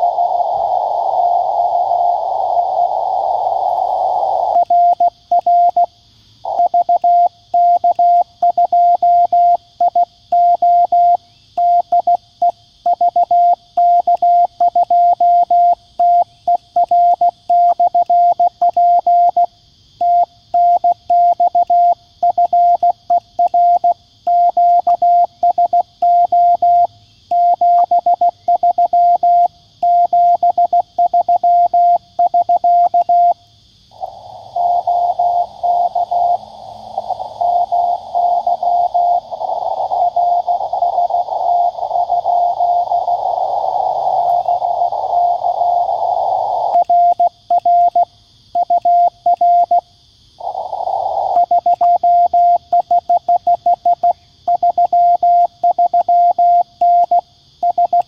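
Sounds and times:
morse code tone: 0:00.0 - 0:00.5, 0:34.0 - 0:36.4, 0:37.4 - 0:48.0.

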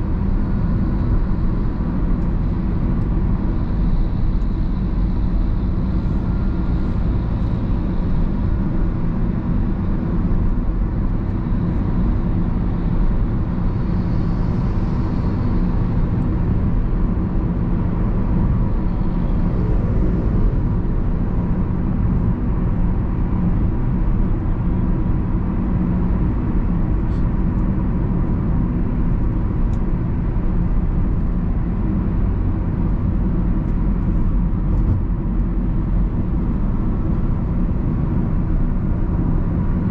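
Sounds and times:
car engine and road noise drone: 0:00.0 - 0:39.9.

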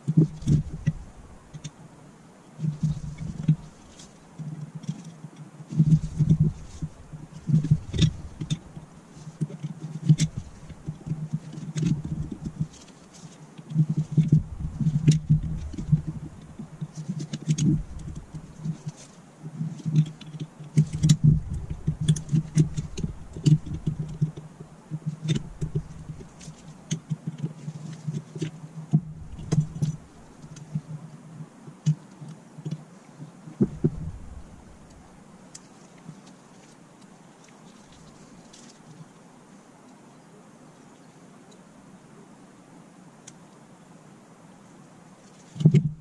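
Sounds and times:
dull bumps of parts set down: 0:33.6 - 0:34.8.

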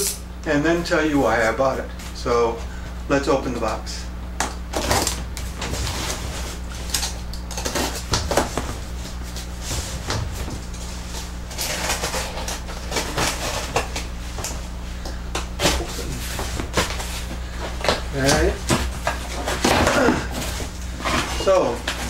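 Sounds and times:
low steady hum: 0:00.0 - 0:22.0
cardboard scraping and rustling: 0:04.7 - 0:14.8, 0:15.5 - 0:22.0.

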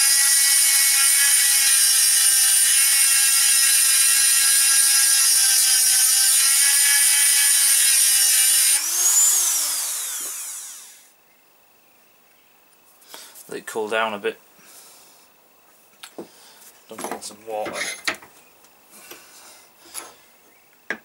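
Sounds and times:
rotary tool grinding steel: 0:00.0 - 0:11.1.

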